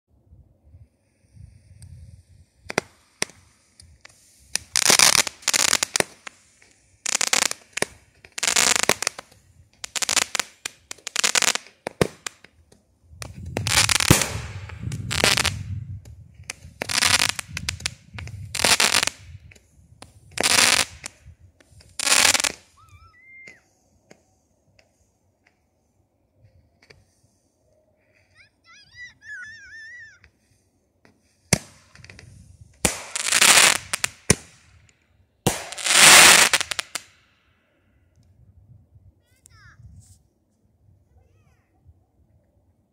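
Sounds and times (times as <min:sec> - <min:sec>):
fireworks crackling bursts: 0:01.0 - 0:25.6, 0:28.0 - 0:37.2.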